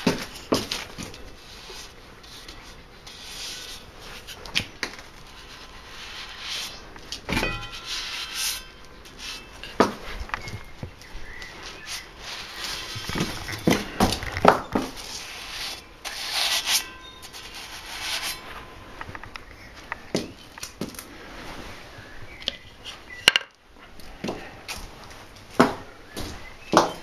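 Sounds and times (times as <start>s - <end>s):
wheel rim rubbing and scraping: 0.0s - 18.9s.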